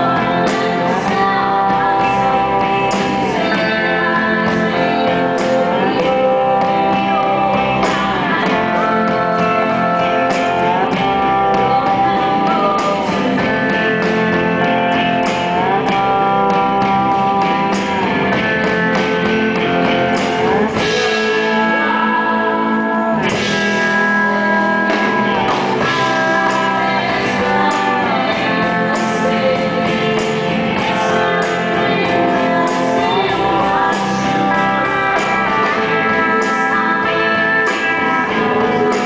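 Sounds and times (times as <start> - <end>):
electric guitar sliding notes: 0.0 - 39.0
woman singing: 0.0 - 39.0.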